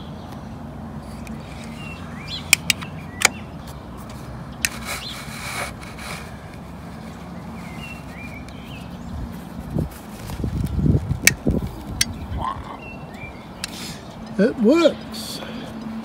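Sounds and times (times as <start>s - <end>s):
short rubbing rush: 4.0s - 8.4s.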